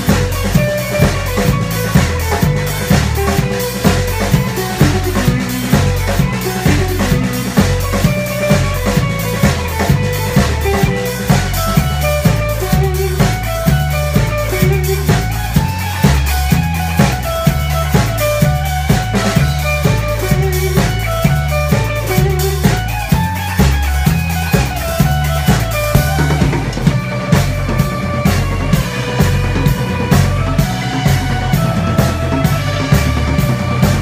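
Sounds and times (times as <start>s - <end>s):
electric guitar: 0.0s - 34.0s
steady drum beat: 0.0s - 34.0s
upright bass: 0.0s - 34.0s.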